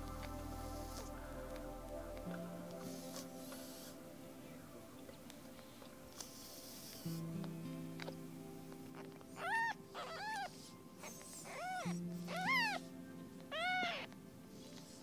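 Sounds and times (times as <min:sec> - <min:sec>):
soft background music: 0:00.0 - 0:15.0
cat meowing: 0:09.4 - 0:10.5, 0:11.4 - 0:12.8, 0:13.5 - 0:14.2.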